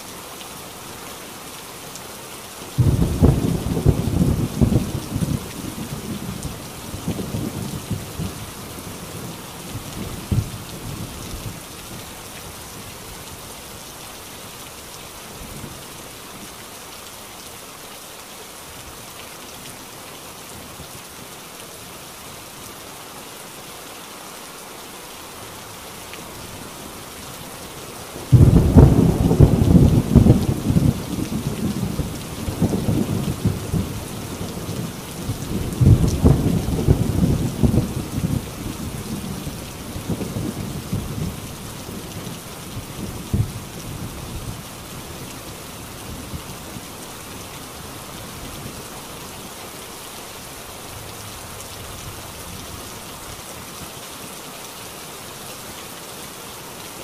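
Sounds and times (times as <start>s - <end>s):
heavy rain on a tin roof: 0.0s - 57.0s
thunder rumbling: 2.8s - 8.4s, 28.2s - 44.6s
loud thunderclap: 28.3s - 33.8s, 35.6s - 38.4s.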